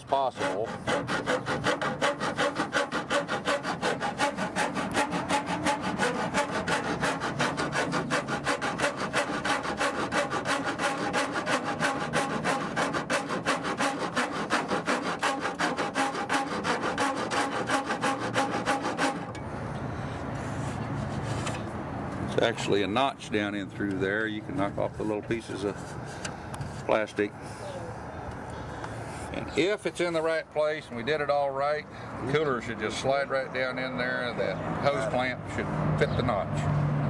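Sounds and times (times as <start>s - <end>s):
rasp filing plastic: 0.0s - 19.3s.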